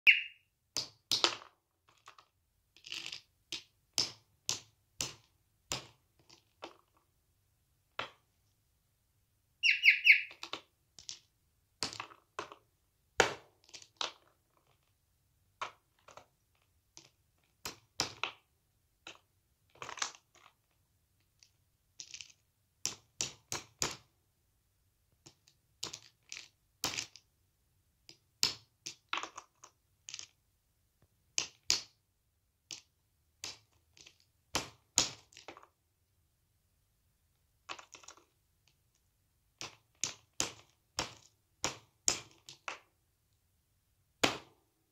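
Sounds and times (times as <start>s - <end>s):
high-pitched squeak: 9.6s - 10.3s.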